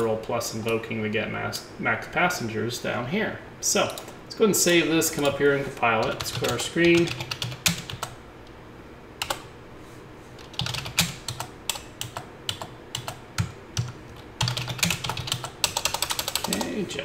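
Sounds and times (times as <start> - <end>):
computer keyboard typing: 6.0 - 8.2, 9.2 - 9.5, 10.4 - 16.8.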